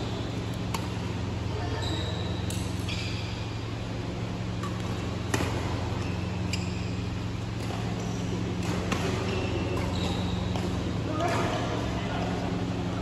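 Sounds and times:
sneakers squeaking on court: 0.0s - 3.6s, 4.5s - 11.4s
steady low hum: 0.0s - 13.0s
racket striking shuttlecock: 0.5s - 1.1s, 4.5s - 11.6s.

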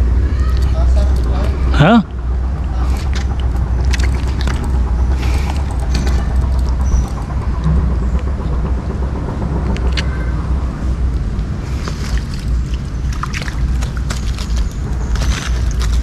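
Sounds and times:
rustling and clicks of net: 11.8s - 16.0s.

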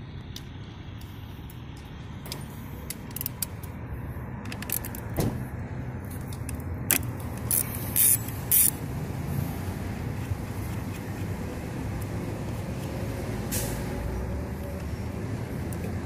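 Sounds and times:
socket wrench clicking: 6.4s - 8.8s
wrench ratcheting: 6.9s - 8.8s.

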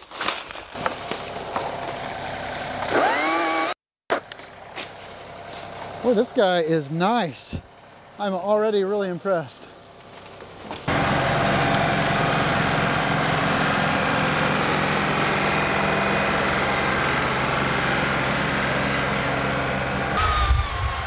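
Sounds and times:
tractor diesel engine running: 0.6s - 3.4s, 4.2s - 21.0s.

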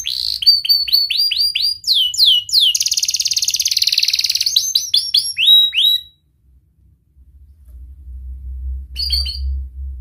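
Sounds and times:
canary singing: 0.0s - 6.2s, 8.9s - 9.7s.

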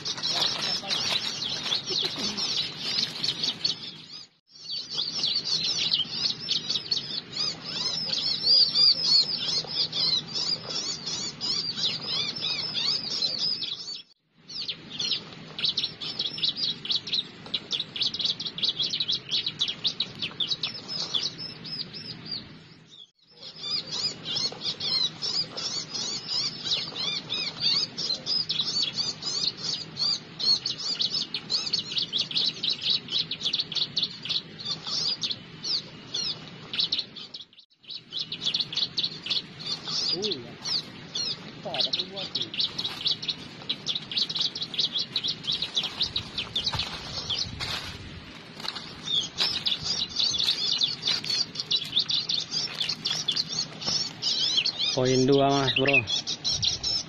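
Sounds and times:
bird high chirps and trills: 0.0s - 57.0s.

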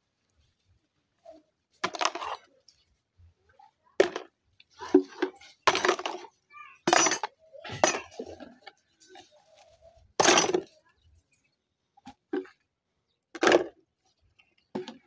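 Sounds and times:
plastic containers clattering: 1.8s - 2.5s, 4.0s - 9.3s, 10.1s - 10.8s, 12.0s - 12.7s, 13.3s - 15.0s.

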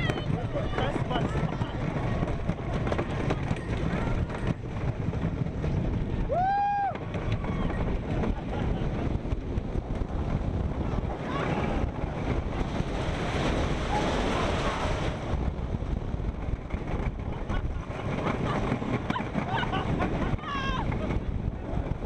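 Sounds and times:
roller coaster rattling on track: 0.0s - 22.0s
wind buffeting microphone: 0.0s - 22.0s
rider whooping: 6.2s - 9.0s, 17.4s - 21.2s.

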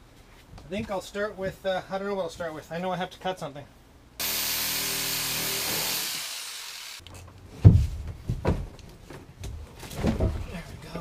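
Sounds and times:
reciprocating saw cutting plastic pipe: 4.2s - 7.0s.

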